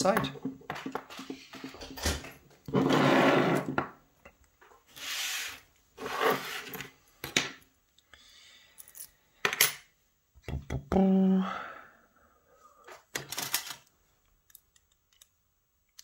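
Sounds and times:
objects sliding on wooden desk: 2.7s - 3.9s, 4.9s - 7.4s.

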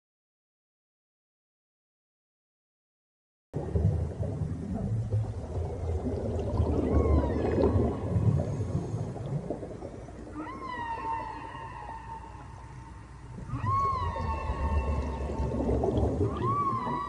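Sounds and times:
low underwater rumble: 3.6s - 17.0s
whale calls: 4.7s - 17.0s.

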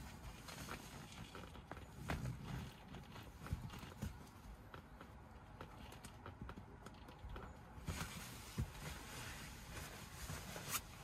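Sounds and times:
rustling: 7.0s - 11.0s
person shifting on mattress: 7.8s - 11.0s.

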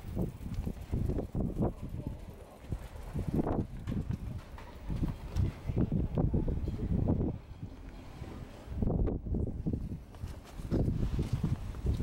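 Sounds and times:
footsteps on asphalt: 0.0s - 1.7s
wind rumble: 0.0s - 12.0s
microphone handling noise: 8.2s - 12.0s.

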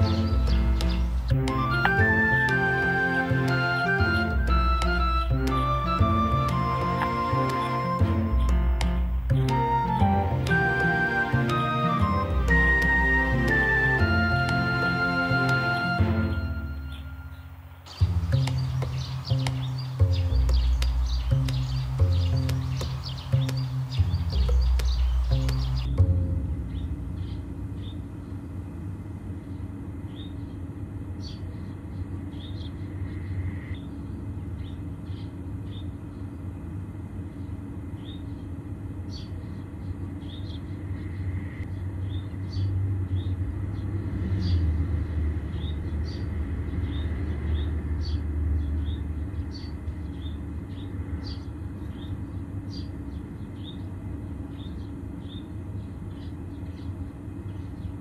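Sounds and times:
small birds chirping: 0.0s - 26.0s, 29.3s - 44.7s, 45.4s - 58.0s
low rumble: 24.0s - 30.9s.

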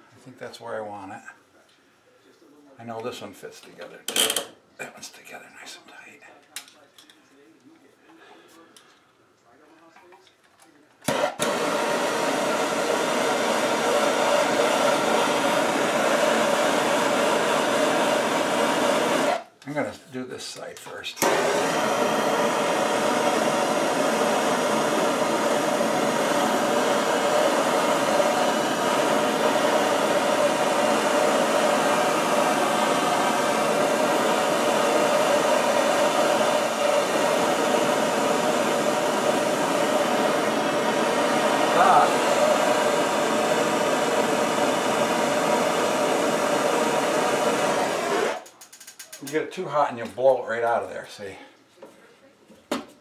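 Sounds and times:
gas torch hissing: 11.1s - 19.5s, 21.2s - 48.5s.

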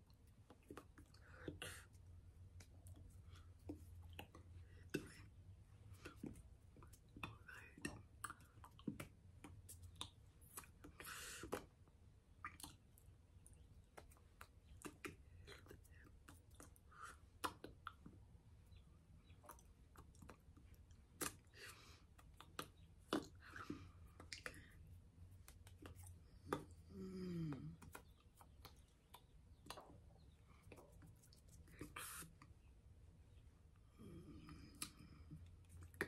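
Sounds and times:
mouth clicks: 12.3s - 24.8s.

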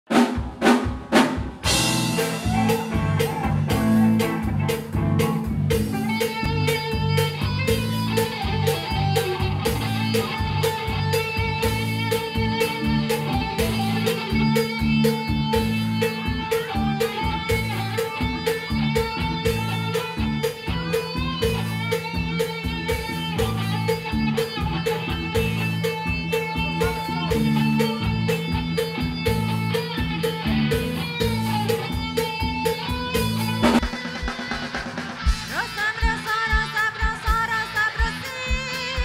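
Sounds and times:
drum kit beat: 0.1s - 39.0s
electric guitar: 0.1s - 39.0s
bass guitar: 1.1s - 39.0s.

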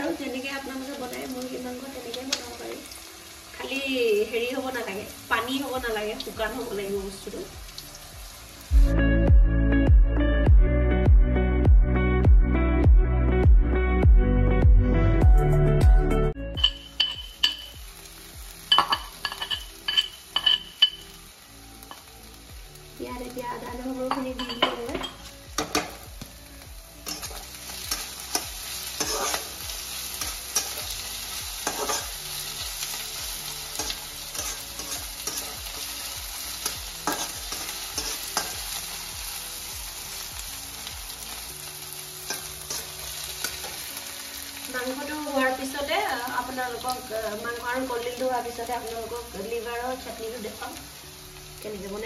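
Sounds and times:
vegetables sizzling in oil: 0.0s - 9.0s, 16.6s - 52.0s
metal spatula scraping and tapping: 18.7s - 21.0s, 27.0s - 29.5s, 31.6s - 32.1s, 36.6s - 38.6s.

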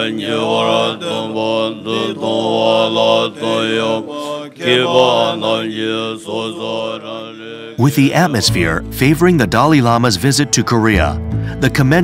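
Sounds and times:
monks chanting: 0.0s - 8.8s.

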